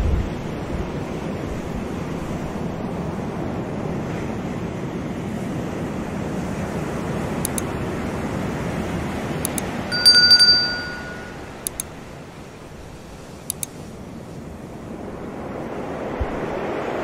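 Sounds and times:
mouse clicks: 7.4s - 7.7s, 11.7s - 11.9s, 13.5s - 13.8s
notification bell ding: 9.9s - 11.4s
surf washing onto shore: 12.0s - 17.0s.

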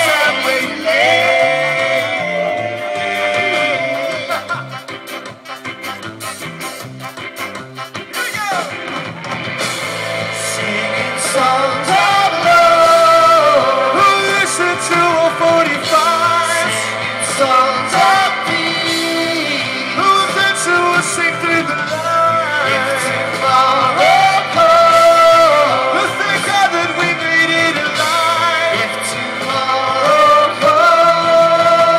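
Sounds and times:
voices singing: 0.0s - 6.0s, 10.1s - 31.9s
live band playing upbeat song: 0.0s - 31.9s.

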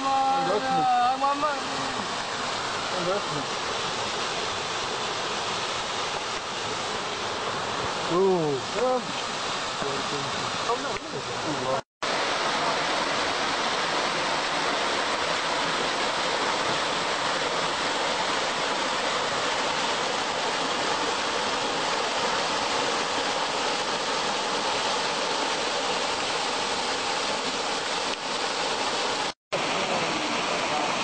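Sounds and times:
waterfall splashing into pool: 0.0s - 31.0s.

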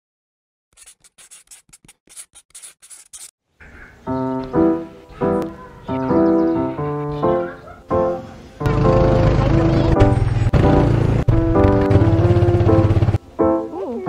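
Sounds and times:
slow piano chords: 4.0s - 14.0s.

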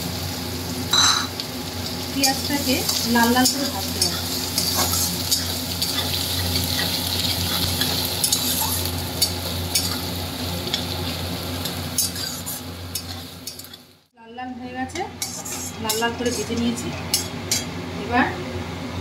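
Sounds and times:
onions sizzling in hot oil: 0.0s - 14.1s, 14.7s - 18.2s
metal spatula scraping pan: 15.1s - 17.7s.

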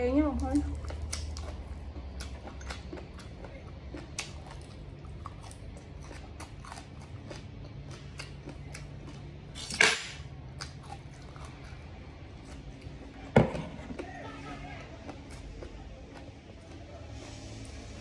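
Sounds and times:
chewing crisp leaf: 0.2s - 18.0s.

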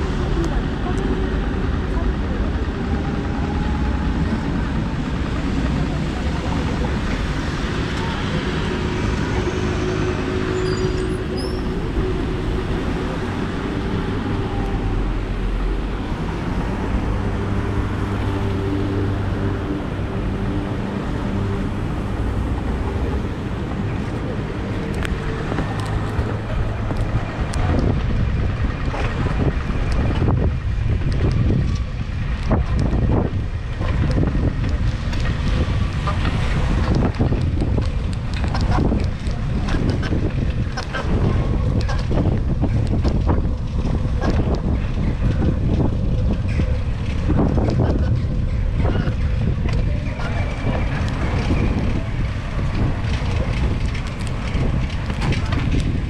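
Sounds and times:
cars and scooters passing: 0.0s - 56.0s
low engine hum: 0.0s - 56.0s
wind buffeting microphone: 0.0s - 56.0s.

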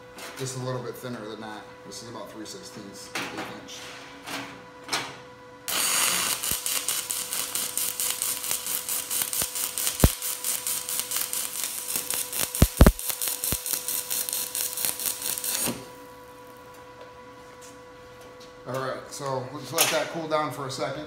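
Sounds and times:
welding arc crackling hiss: 5.7s - 16.6s
sharp pops: 12.6s - 13.1s.

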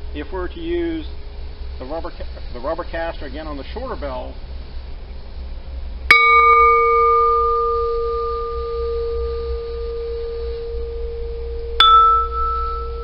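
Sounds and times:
cylinder bell ringing: 6.1s - 13.0s.

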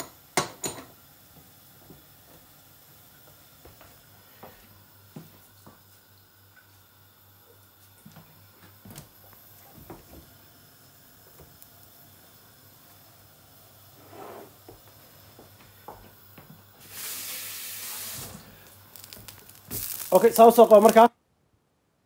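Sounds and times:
loud hiss: 16.7s - 21.1s.

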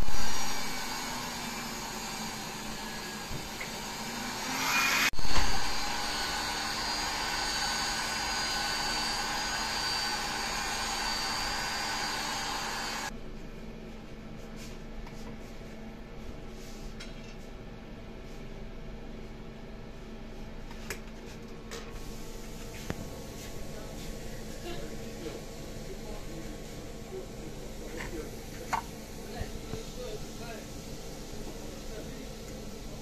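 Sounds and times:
small motor whirring: 0.0s - 13.1s.

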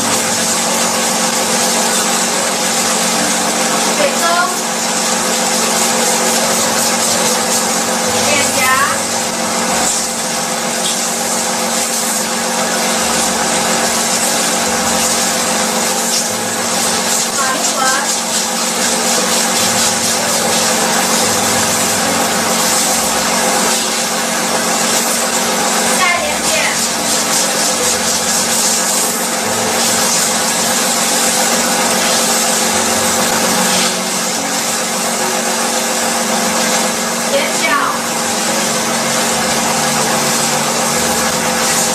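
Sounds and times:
motor hum: 0.0s - 41.9s.

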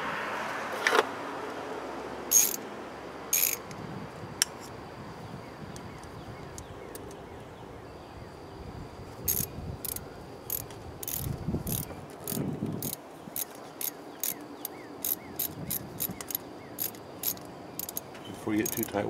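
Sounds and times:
ratcheting hand tool clicks: 2.3s - 2.6s, 3.3s - 3.8s, 9.3s - 19.0s.

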